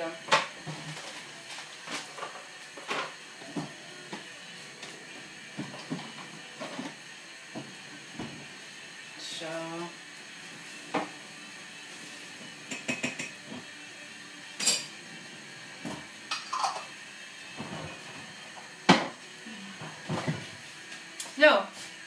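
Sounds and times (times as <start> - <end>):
dishes and utensils clinking: 12.6 - 13.7, 14.6 - 15.0, 15.8 - 17.0.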